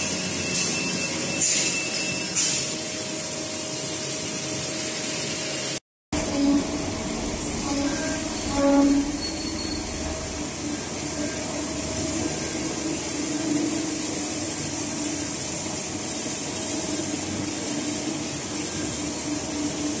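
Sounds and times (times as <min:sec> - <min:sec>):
lathes running drone: 0:06.2 - 0:20.0.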